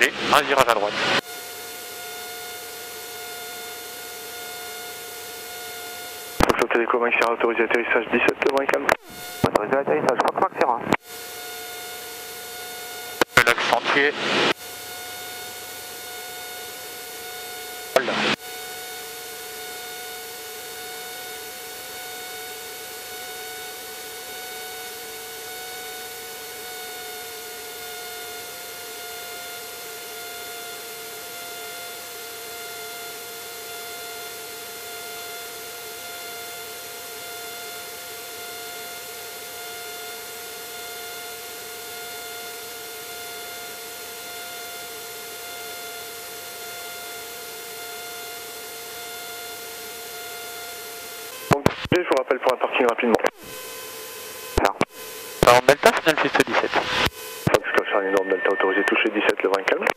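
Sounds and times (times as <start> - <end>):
light airplane cabin drone: 6.4 - 11.3, 51.2 - 59.9.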